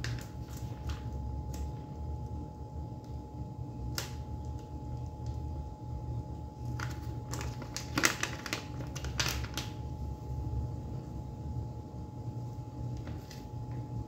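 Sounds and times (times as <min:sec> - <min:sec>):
plastic bag crinkling: 0:00.0 - 0:01.8, 0:06.6 - 0:09.8.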